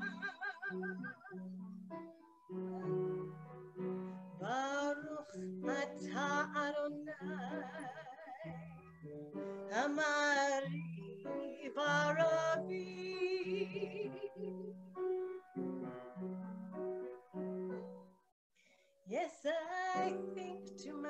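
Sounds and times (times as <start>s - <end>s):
soft instrumental accompaniment: 0.0s - 18.3s
woman singing with vibrato: 4.4s - 8.8s, 9.7s - 14.5s, 19.1s - 21.0s.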